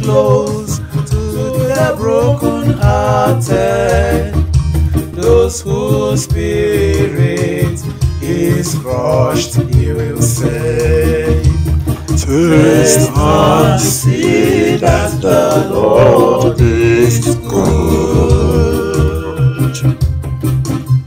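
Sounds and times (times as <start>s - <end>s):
man singing slow melody: 0.0s - 4.4s, 12.2s - 20.0s
electronic keyboard chords: 0.0s - 21.0s.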